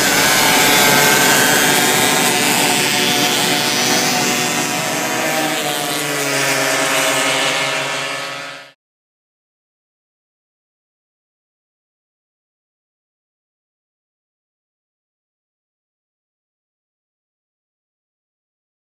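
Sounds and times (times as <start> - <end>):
racing kart engines: 0.0 - 8.8.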